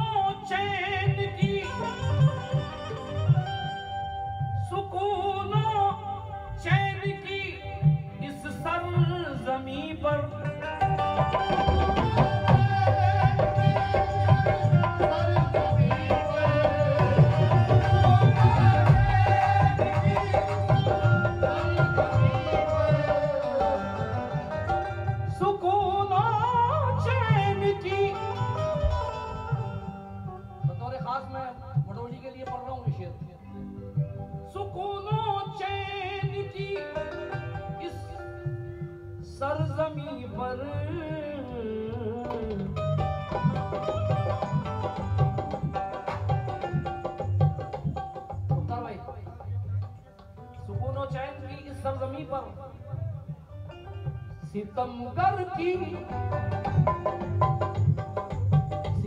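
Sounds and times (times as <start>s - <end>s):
tabla drumming: 0.0s - 59.0s
person singing: 4.7s - 33.5s
held instrumental notes: 10.2s - 31.9s, 42.2s - 48.6s.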